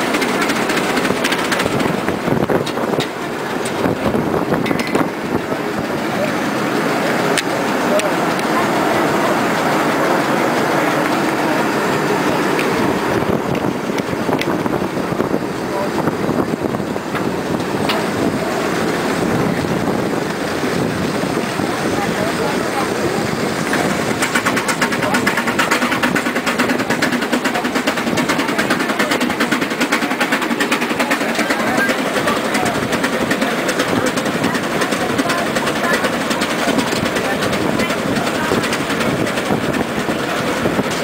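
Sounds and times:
moving vehicle running: 0.0 - 41.0
steam locomotive wheels rumbling: 0.0 - 41.0
wind buffeting microphone: 0.0 - 41.0
sharp clicks and knocks: 4.6 - 5.1.

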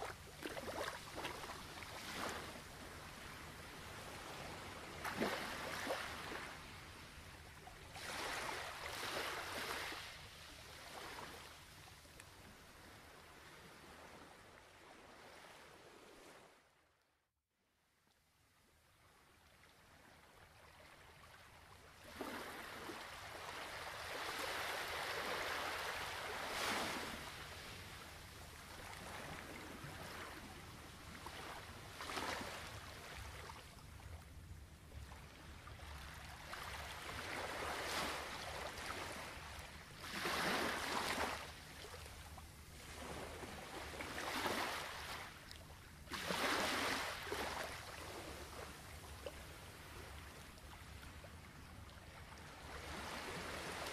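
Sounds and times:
ocean waves washing ashore: 0.0 - 7.3, 7.9 - 11.6, 22.0 - 33.7, 46.0 - 51.0.

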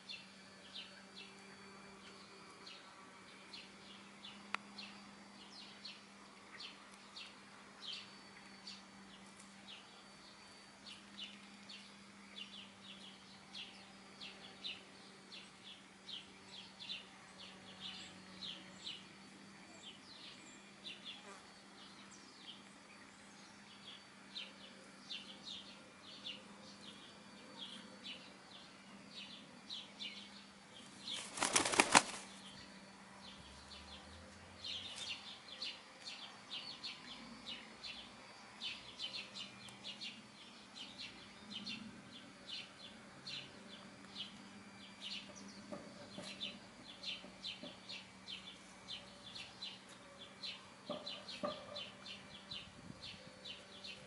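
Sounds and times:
hen flapping wings: 31.0 - 32.4.

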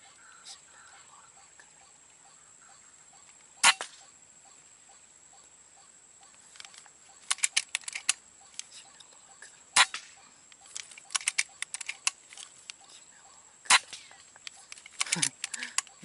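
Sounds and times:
air rifle shots: 3.6 - 4.0, 9.8 - 10.2
quick sharp clicks: 6.3 - 9.1, 9.8 - 13.0, 13.7 - 16.0.

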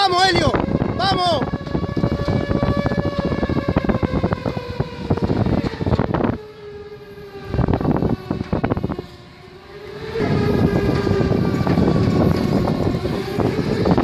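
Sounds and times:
siren wailing: 0.0 - 14.0
crackling and knocking noise: 0.8 - 6.4, 9.9 - 14.0.

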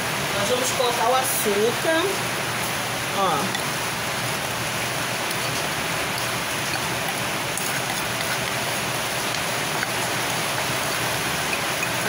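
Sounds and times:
rain hissing: 1.0 - 12.0
sugar scraped from glass bowl: 5.3 - 10.1.

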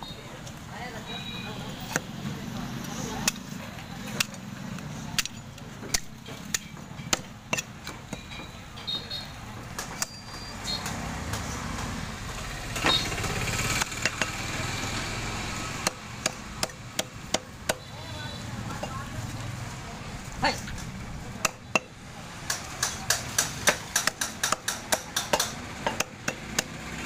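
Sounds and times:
cleaver chopping on wooden block: 5.2 - 8.3, 13.8 - 14.4, 15.8 - 17.9, 21.4 - 26.8.

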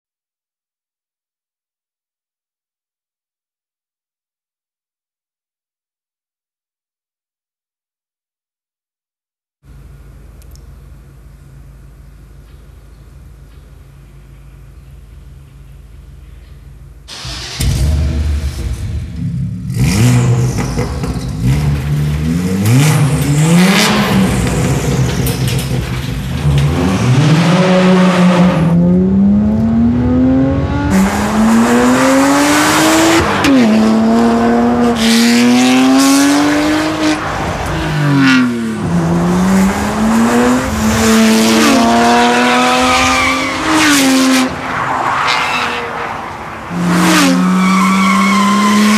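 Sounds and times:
car engine revving through gears: 17.1 - 48.9.

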